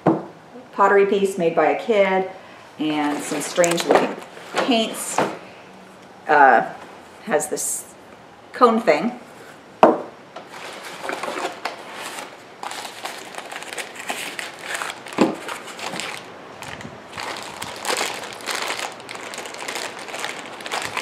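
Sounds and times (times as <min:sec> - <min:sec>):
knock: 0:00.0 - 0:00.3
packaging crinkling and rustling: 0:02.9 - 0:05.2, 0:10.5 - 0:21.0.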